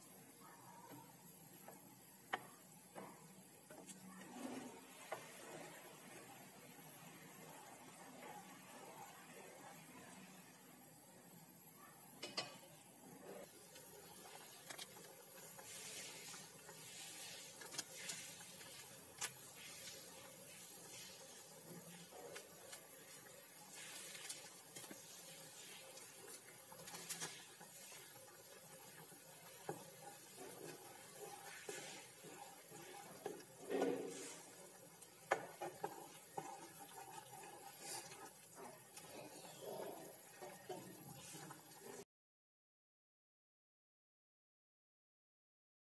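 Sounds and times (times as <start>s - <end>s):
food simmering in a pan: 0.0s - 42.1s
spatula stirring thick curry: 13.5s - 42.0s.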